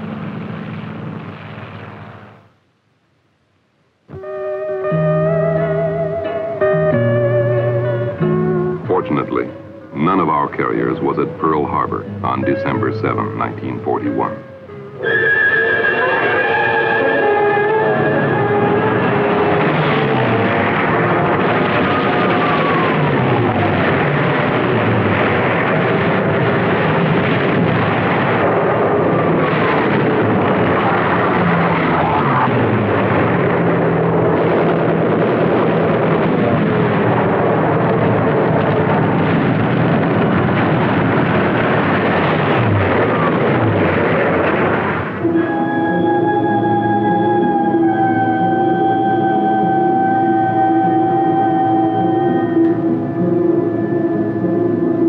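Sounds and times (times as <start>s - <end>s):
propeller plane engines: 0.0s - 2.4s, 15.8s - 55.0s.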